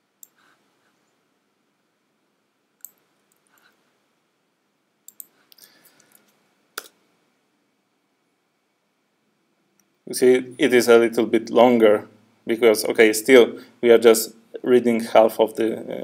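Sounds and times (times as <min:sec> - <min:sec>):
keyboard and mouse clicks: 0:02.8 - 0:03.8, 0:05.1 - 0:07.0.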